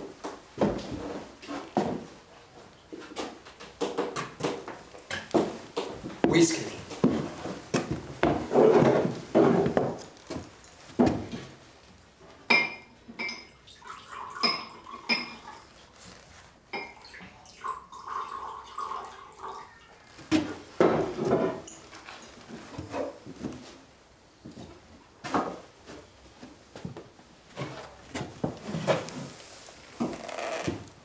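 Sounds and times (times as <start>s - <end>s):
spoons clinking against bowls: 12.5s - 13.6s, 14.4s - 15.6s.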